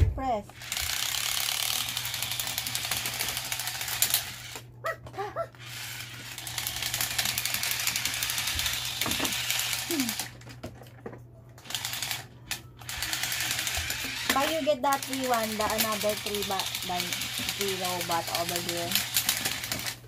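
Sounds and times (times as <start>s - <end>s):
toy robot motors buzzing: 0.5s - 4.7s, 5.5s - 10.4s, 11.6s - 20.0s.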